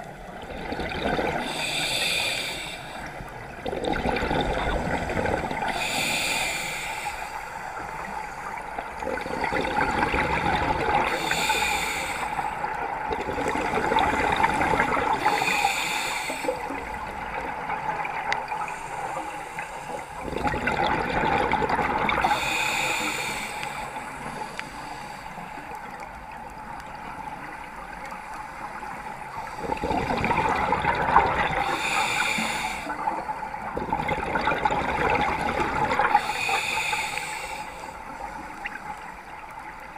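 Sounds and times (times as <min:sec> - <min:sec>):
bubbling exhale underwater: 0:00.4 - 0:02.1, 0:03.6 - 0:06.2, 0:09.0 - 0:11.4, 0:20.2 - 0:22.6, 0:29.6 - 0:32.0, 0:33.1 - 0:36.4
regulator hiss on inhale: 0:01.4 - 0:03.5, 0:04.8 - 0:09.6, 0:11.1 - 0:12.8, 0:14.1 - 0:17.1, 0:18.4 - 0:20.3, 0:22.2 - 0:26.2, 0:31.5 - 0:33.6, 0:36.0 - 0:39.9.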